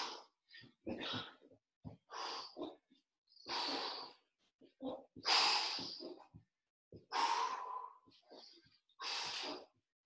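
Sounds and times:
man breathing hard: 7.0s - 9.7s.

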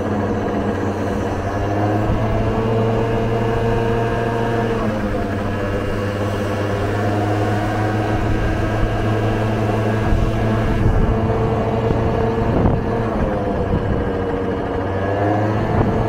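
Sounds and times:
scooter engine running: 0.0s - 16.0s.

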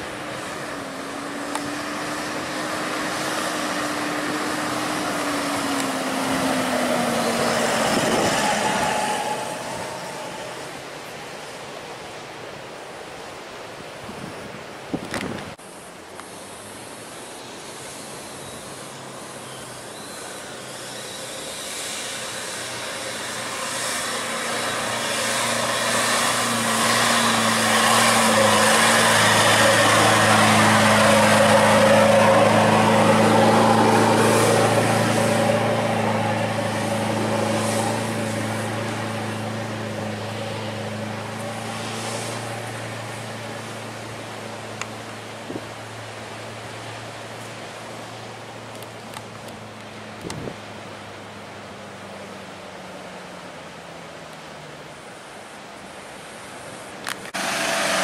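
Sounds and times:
truck engine under load: 0.0s - 11.3s, 21.2s - 53.2s, 57.0s - 58.0s
tyres churning sand: 0.0s - 14.0s, 16.4s - 50.8s, 54.6s - 58.0s.

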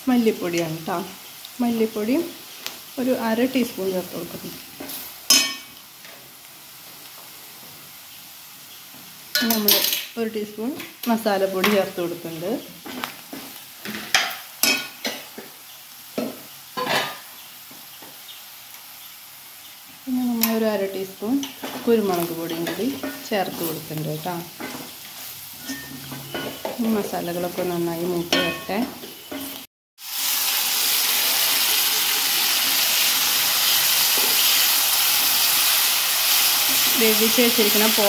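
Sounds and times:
faint sizzle: 0.0s - 38.0s
metal spatula scraping a wok: 24.6s - 26.7s.

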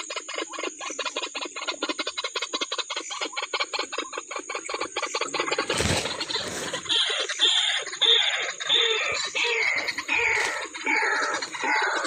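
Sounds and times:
bird calling with harsh croaks: 0.0s - 12.0s
rustle of leaves and stems: 5.4s - 7.3s, 9.4s - 11.7s.

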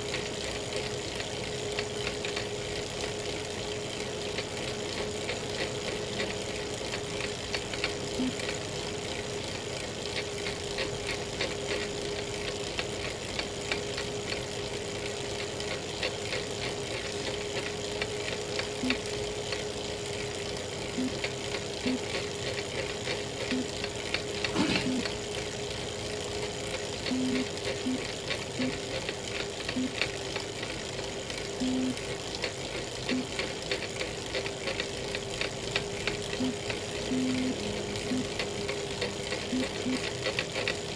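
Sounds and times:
bike trainer humming: 0.0s - 40.9s
small cracking clicks: 0.1s - 2.8s.

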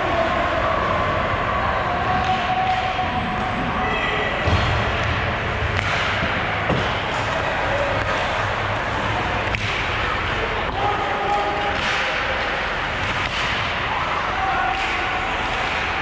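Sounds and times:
crowd noise: 0.0s - 16.0s
sticks and puck clacking: 2.1s - 3.2s, 4.6s - 16.0s
distant shouts: 7.0s - 16.0s.

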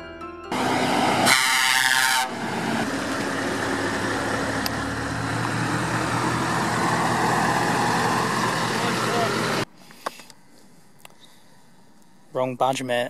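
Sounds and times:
lorry air horn: 0.5s - 2.4s
truck diesel engines: 0.5s - 12.2s.

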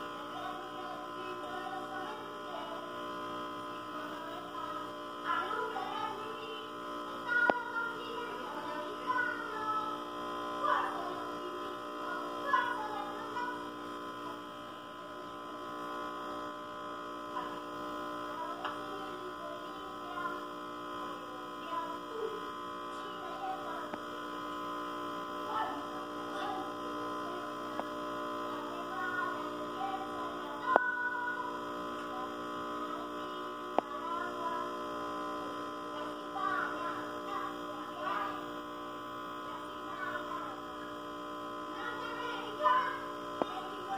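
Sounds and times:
electrical mains hum: 0.0s - 43.9s.

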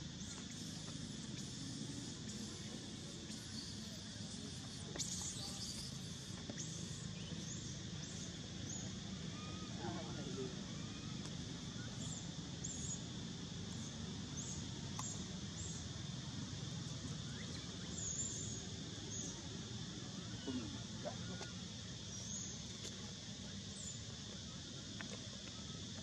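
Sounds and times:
outdoor background hum: 0.0s - 26.0s
faint high chirps: 0.2s - 13.0s, 17.0s - 19.5s, 20.1s - 21.6s.

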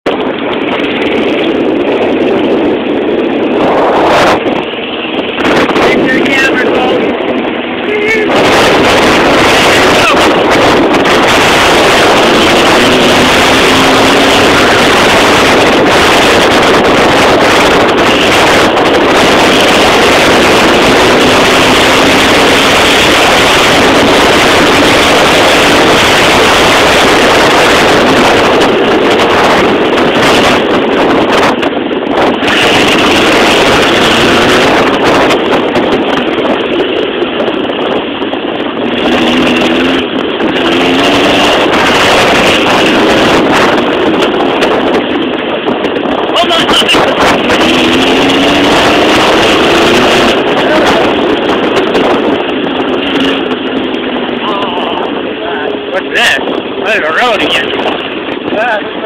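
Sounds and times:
wind rush on microphone: 0.0s - 59.0s
engine revving: 0.2s - 58.8s.

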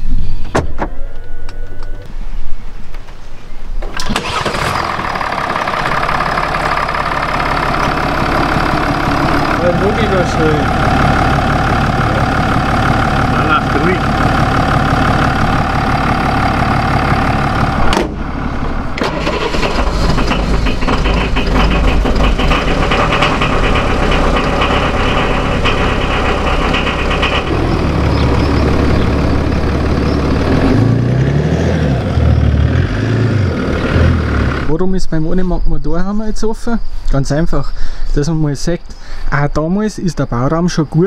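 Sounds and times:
diesel engine clattering: 3.8s - 35.7s.

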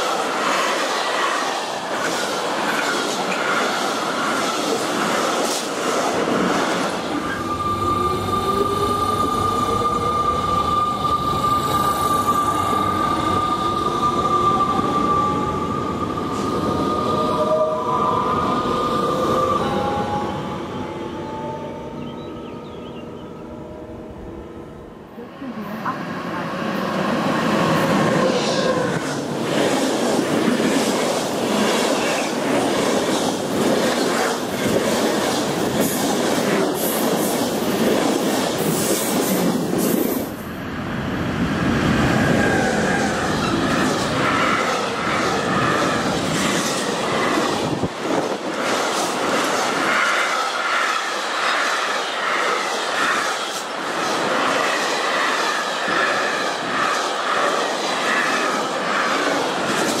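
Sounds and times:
passenger train rushing past: 0.0s - 60.0s.

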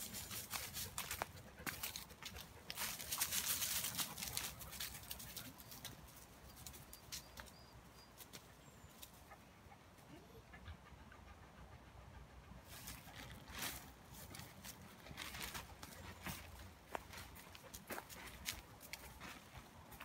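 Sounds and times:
footsteps through dry leaves: 0.0s - 5.9s, 12.7s - 19.6s.

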